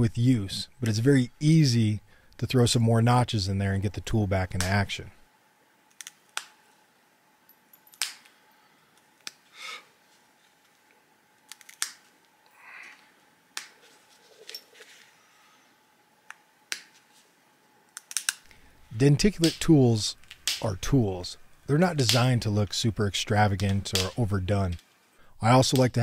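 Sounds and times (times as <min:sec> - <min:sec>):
stone flakes clicking and snapping: 0:11.5 - 0:12.1, 0:17.9 - 0:18.6.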